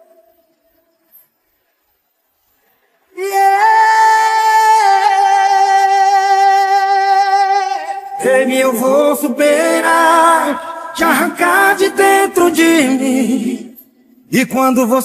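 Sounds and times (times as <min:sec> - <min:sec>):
man singing held vowel: 0:03.2 - 0:15.0.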